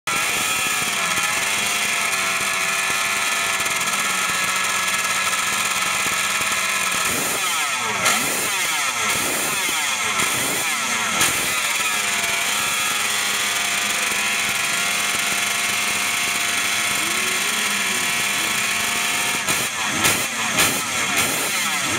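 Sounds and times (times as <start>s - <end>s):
two-stroke motorcycle engine revving: 0.1s - 21.9s.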